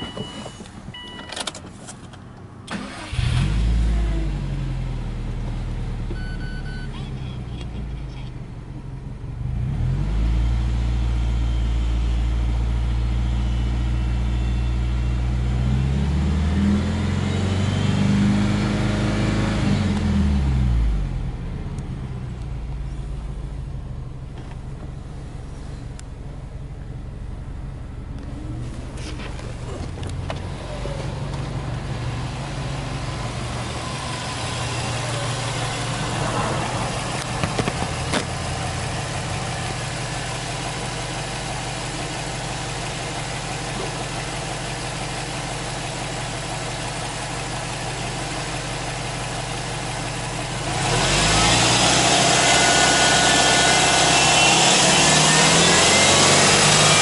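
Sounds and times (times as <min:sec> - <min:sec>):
car engine idling: 0:20.8 - 0:57.0.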